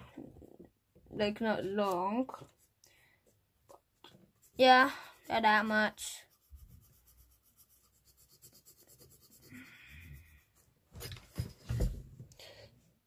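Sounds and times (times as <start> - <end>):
pencil scratching on paper: 4.3 - 10.8.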